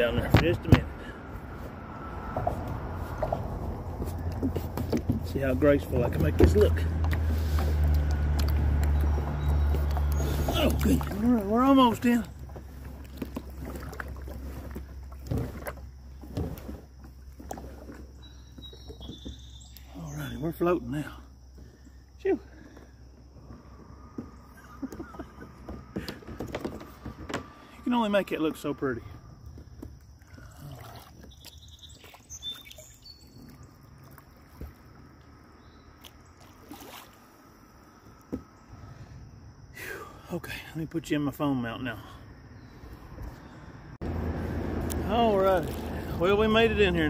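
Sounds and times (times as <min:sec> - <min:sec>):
kayak knocking and scraping: 0:00.0 - 0:35.0, 0:45.0 - 0:47.0
low rumble of wind and water: 0:00.0 - 0:47.0.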